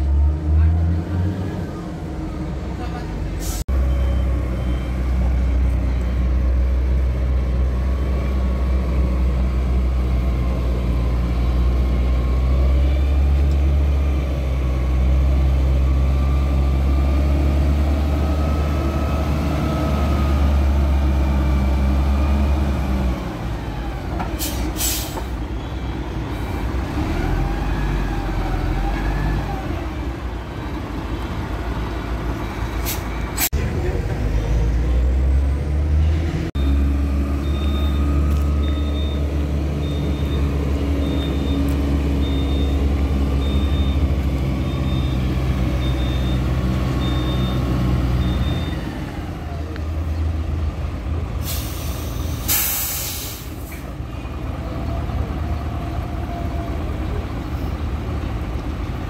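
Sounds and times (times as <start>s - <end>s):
diesel truck engine humming: 1.2s - 59.0s
air brakes hissing: 3.4s - 3.7s, 24.2s - 25.4s, 32.8s - 33.5s, 51.4s - 53.9s.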